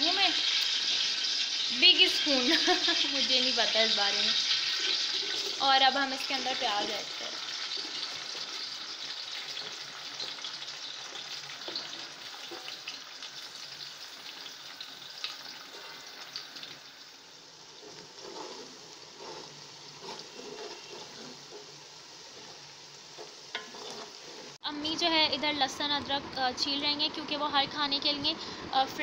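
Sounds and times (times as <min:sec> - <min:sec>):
onions sizzling in hot oil: 0:00.0 - 0:29.0
steel ladle stirring and scraping: 0:04.4 - 0:14.5, 0:15.1 - 0:16.3, 0:17.7 - 0:24.6.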